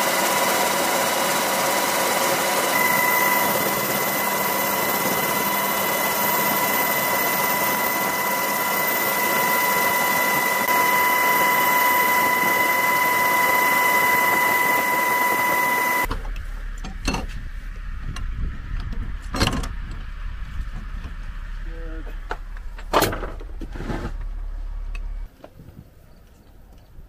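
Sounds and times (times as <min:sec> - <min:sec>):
helicopter cabin roar: 0:00.0 - 0:22.8
low rumble: 0:16.1 - 0:25.3.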